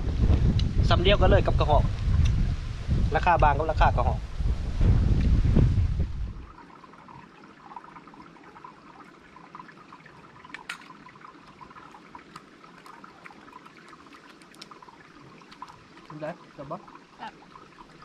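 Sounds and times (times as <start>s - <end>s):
faint trickling water: 6.2s - 18.0s.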